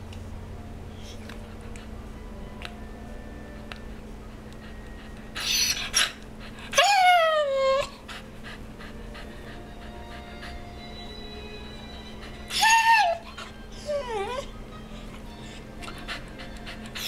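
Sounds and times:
dog whining: 4.6s - 17.0s.

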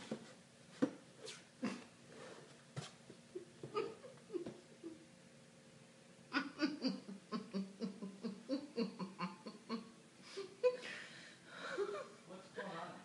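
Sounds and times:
person laughing: 6.3s - 11.0s, 11.6s - 12.2s.

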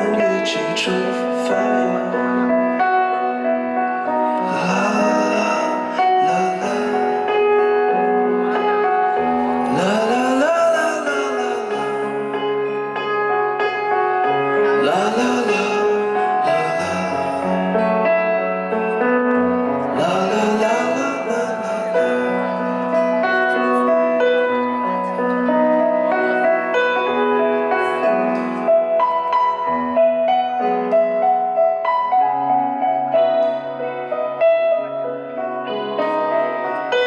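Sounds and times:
keyboard melody: 0.0s - 37.0s
live band through speakers: 0.0s - 37.0s.

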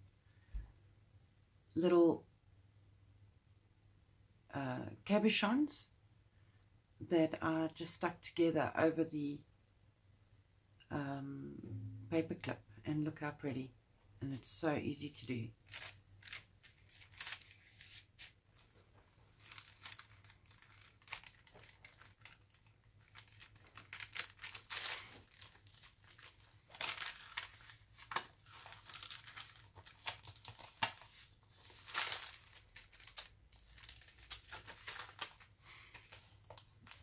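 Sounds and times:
paper rustling and crinkling: 15.7s - 37.0s.

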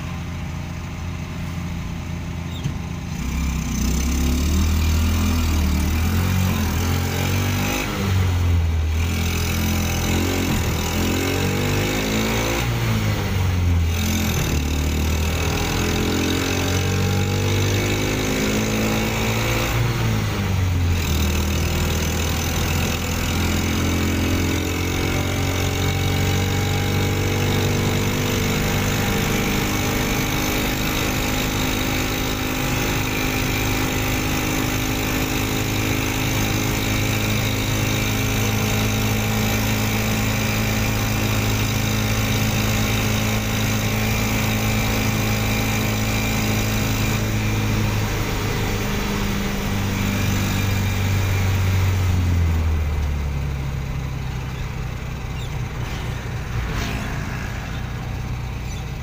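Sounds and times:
van engine running: 0.0s - 18.0s, 18.9s - 59.0s.

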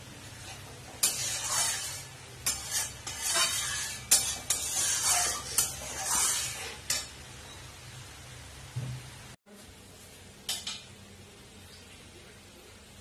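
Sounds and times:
curry sizzling: 0.0s - 9.4s
spatula scraping pan: 0.2s - 7.2s.

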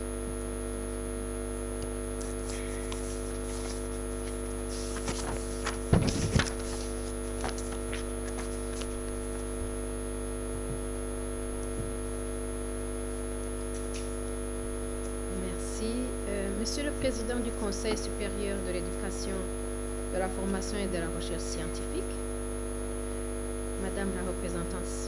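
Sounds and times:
electrical mains hum: 0.0s - 25.0s
papers rustling: 2.2s - 9.6s
microphone handling knocks: 5.8s - 6.6s.

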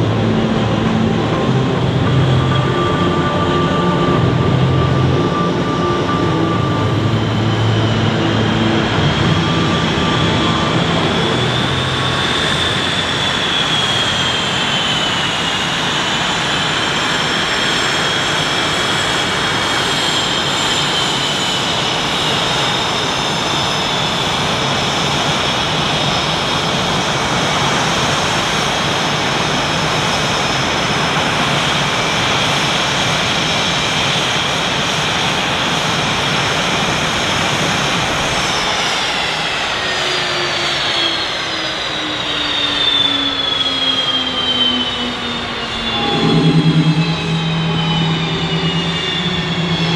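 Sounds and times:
jet engines whining: 0.0s - 49.9s.

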